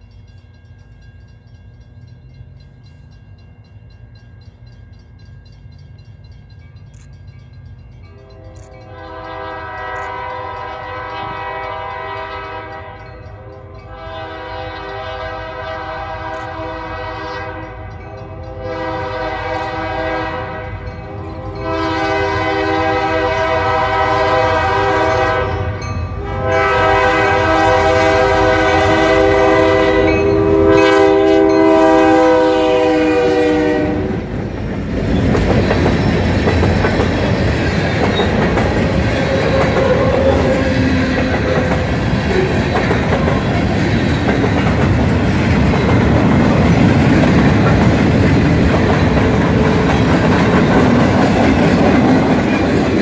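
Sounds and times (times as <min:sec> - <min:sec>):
freight train rumbling over rails: 0:00.0 - 0:53.0
diesel locomotive horn: 0:08.0 - 0:34.4, 0:38.3 - 0:43.9.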